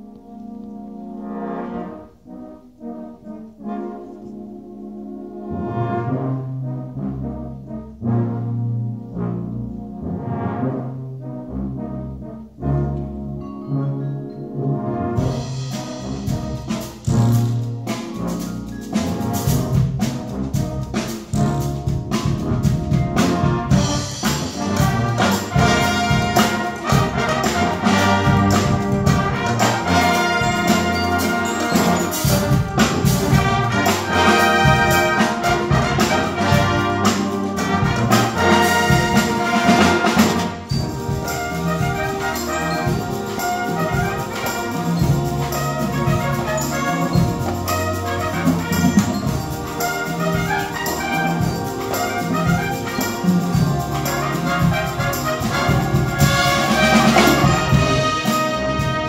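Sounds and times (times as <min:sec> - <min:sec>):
brass and percussion ensemble: 0:00.0 - 0:59.0
sharp percussion hits: 0:21.0 - 0:59.0.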